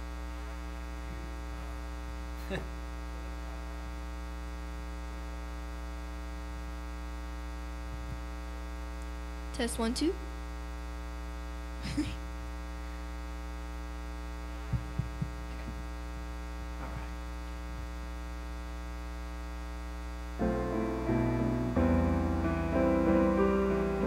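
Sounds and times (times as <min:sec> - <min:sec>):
electrical mains hum: 0:00.0 - 0:24.0
faint microphone clicks: 0:07.9 - 0:08.3, 0:14.6 - 0:15.9
piano music: 0:20.4 - 0:24.0.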